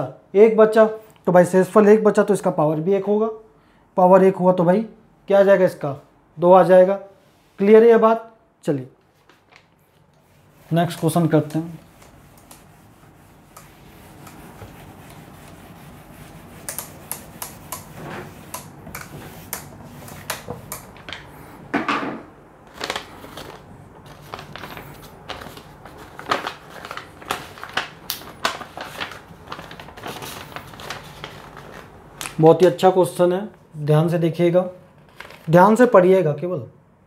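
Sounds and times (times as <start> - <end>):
paper rustling: 9.0 - 21.5, 22.6 - 32.4, 35.0 - 35.8
whiteboard eraser rubbing: 10.2 - 20.7
markers tapping and clicking: 10.8 - 12.7, 13.4 - 15.6, 16.5 - 21.3.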